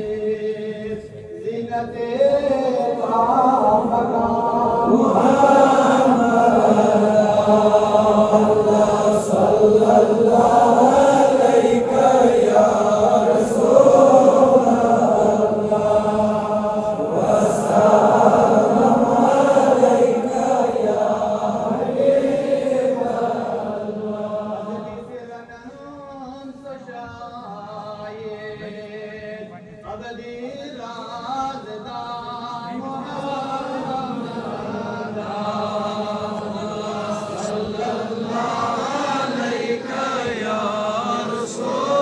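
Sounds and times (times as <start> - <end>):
man chanting devotionally: 0.0 - 42.0.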